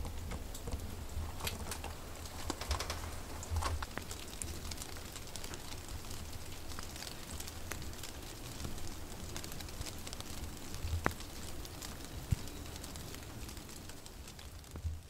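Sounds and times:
rain hiss: 0.0 - 15.0
raindrops ticking on leaves: 0.0 - 15.0.

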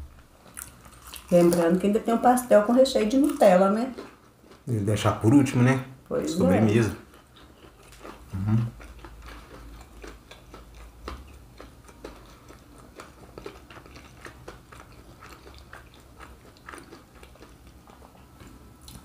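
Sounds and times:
close chewing: 0.1 - 1.8, 3.1 - 5.4, 6.4 - 19.0
voice murmur: 8.3 - 8.7.

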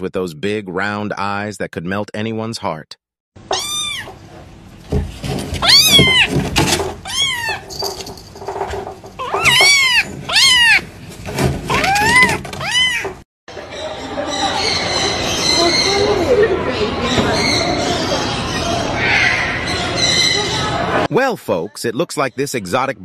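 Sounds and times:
kitten meowing: 3.5 - 4.2, 5.6 - 6.3, 7.0 - 7.6, 9.2 - 10.8.

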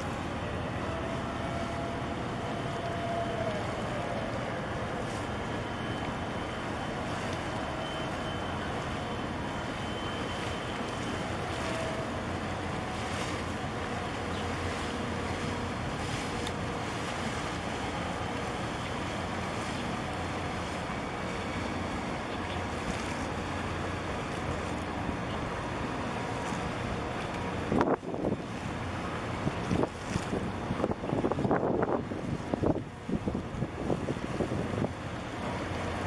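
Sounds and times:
low engine drone: 0.0 - 36.0
water sloshing: 0.0 - 36.0
wind on microphone: 26.6 - 35.2.

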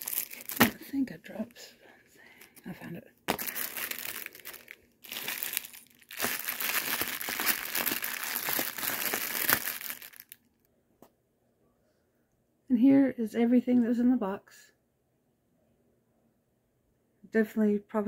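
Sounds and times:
plastic bags crinkling: 0.0 - 1.5, 3.3 - 10.4.

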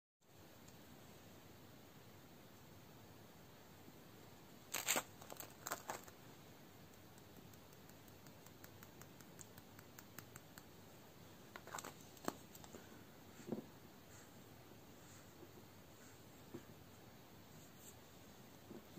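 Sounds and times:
glitter ticking onto plastic dish: 6.9 - 10.8.

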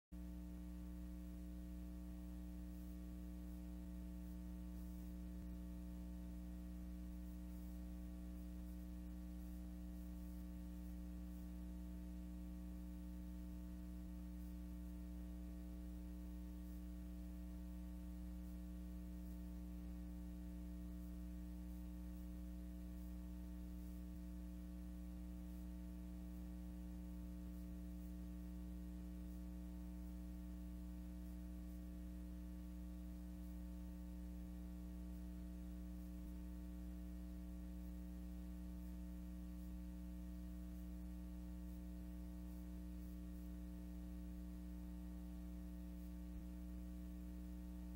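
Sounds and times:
steady electrical hum: 0.2 - 47.9.

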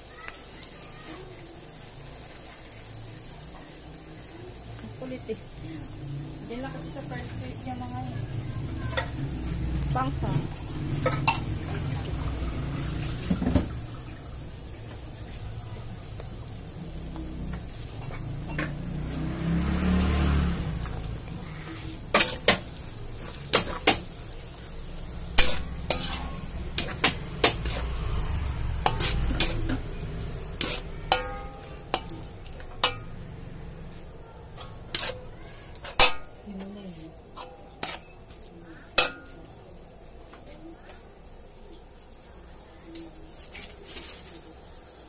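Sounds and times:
low sizzle: 0.0 - 45.0
spatula scraping frying pan: 17.1 - 33.3, 33.9 - 36.4, 37.2 - 39.3
spatula clacking on pan: 22.0 - 27.9, 28.8 - 33.2, 34.6 - 36.4, 38.9 - 39.4.

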